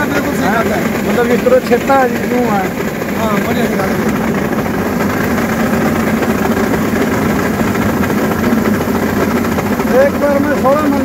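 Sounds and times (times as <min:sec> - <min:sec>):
combine harvester engine drone: 0:00.0 - 0:11.0.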